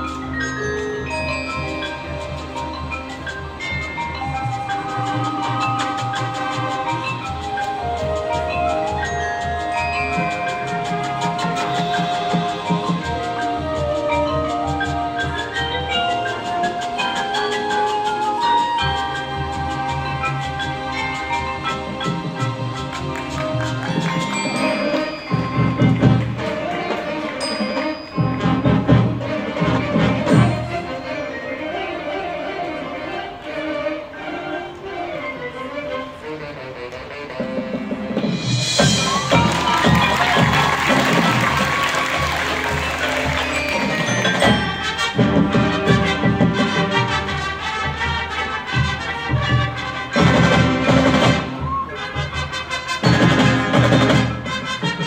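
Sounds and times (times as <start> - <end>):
mallet percussion ringing: 0.0 - 32.8, 38.3 - 51.8
marching band playing: 0.0 - 55.0
percussion strike: 38.2 - 47.1.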